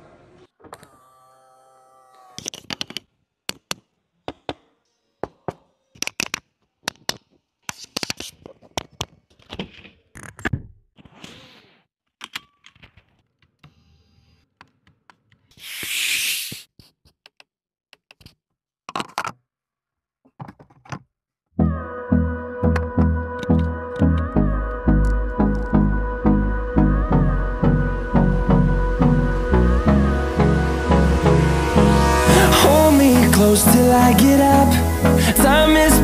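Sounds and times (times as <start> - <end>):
loud rushing hiss: 30.0 - 36.0.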